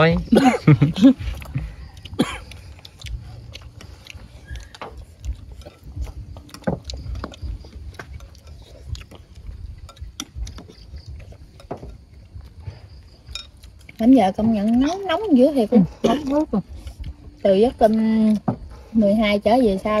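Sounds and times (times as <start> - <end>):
low uneven rumble: 0.0 - 20.0
chopsticks and bowls clinking: 2.2 - 14.0.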